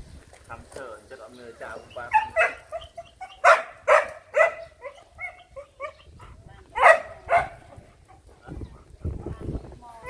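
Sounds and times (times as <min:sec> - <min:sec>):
puppies yelping and yapping: 0:01.6 - 0:08.9.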